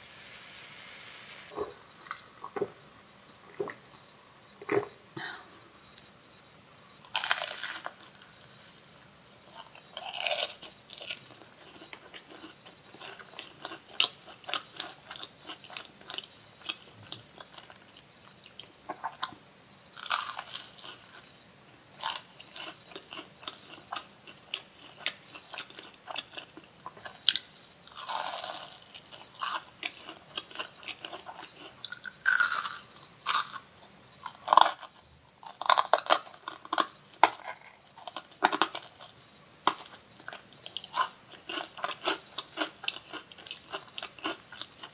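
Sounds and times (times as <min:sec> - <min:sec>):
loud crunching bites: 0:07.1 - 0:08.0, 0:20.0 - 0:21.0, 0:27.9 - 0:33.6, 0:34.2 - 0:39.1.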